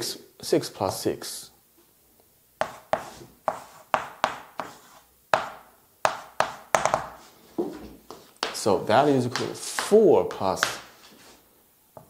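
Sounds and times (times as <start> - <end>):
chalk tapping and scraping: 2.6 - 11.4.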